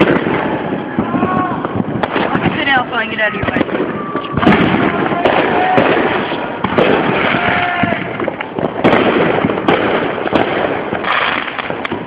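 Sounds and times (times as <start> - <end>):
fireworks crackling and banging: 0.0 - 12.0.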